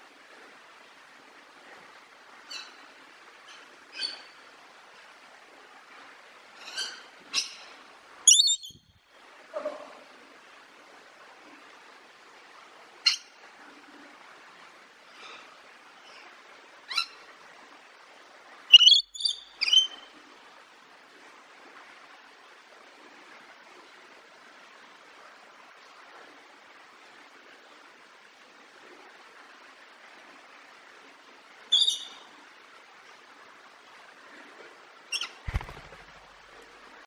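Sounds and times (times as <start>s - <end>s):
parrot shrill calls: 8.3s - 8.8s, 18.7s - 20.0s, 31.7s - 32.2s, 35.1s - 35.3s.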